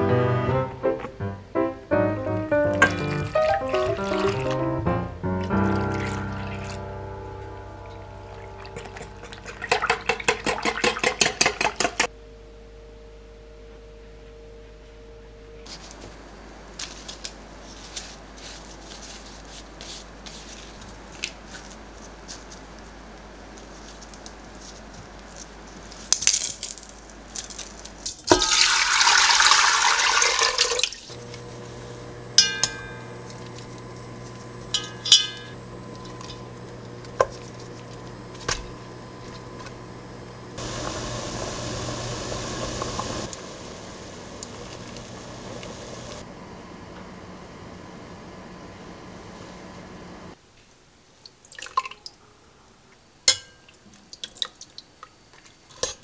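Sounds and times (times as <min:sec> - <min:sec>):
low steady hum: 0:00.0 - 0:11.4, 0:12.0 - 0:28.8, 0:30.6 - 0:50.4
dishes and utensils clinking: 0:02.7 - 0:04.5, 0:07.9 - 0:12.1, 0:32.4 - 0:33.7, 0:34.7 - 0:36.4
water pouring into metal pot: 0:02.8 - 0:04.6, 0:05.4 - 0:06.9, 0:07.9 - 0:11.3, 0:28.3 - 0:31.1.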